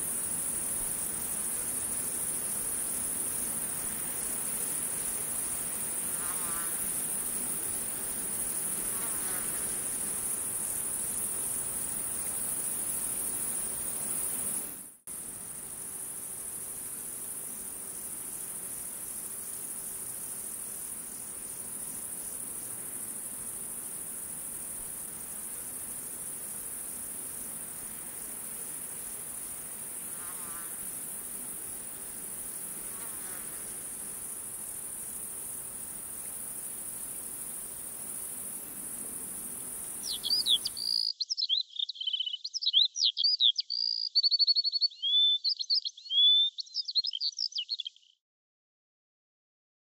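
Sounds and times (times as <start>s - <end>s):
insects chirping: 0.0s - 48.1s.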